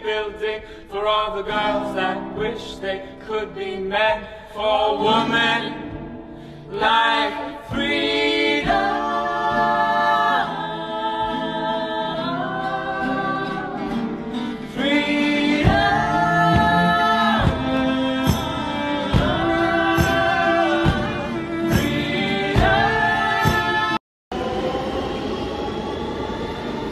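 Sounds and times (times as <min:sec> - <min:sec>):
group singing long held notes: 0:00.0 - 0:03.2, 0:04.0 - 0:26.9
acoustic guitars strumming: 0:01.4 - 0:24.0
cello: 0:06.7 - 0:24.0.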